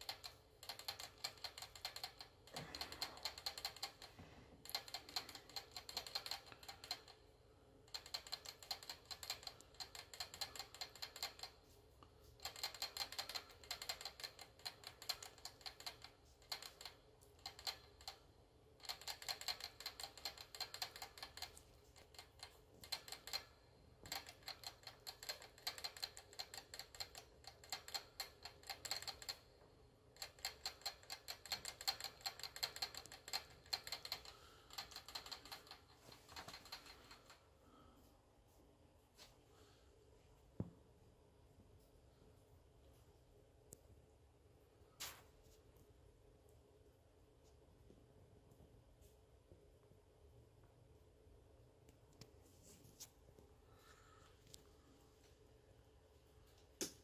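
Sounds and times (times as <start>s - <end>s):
rat licking water bottle valve clicking: 0.0s - 7.2s, 7.9s - 11.6s, 12.4s - 18.2s, 18.8s - 29.4s, 30.1s - 35.8s.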